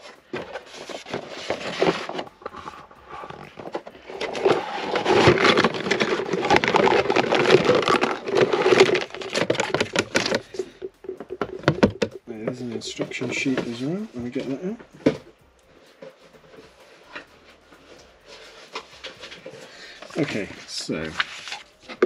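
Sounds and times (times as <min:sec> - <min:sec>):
plastic packaging crinkling: 0:00.0 - 0:14.6.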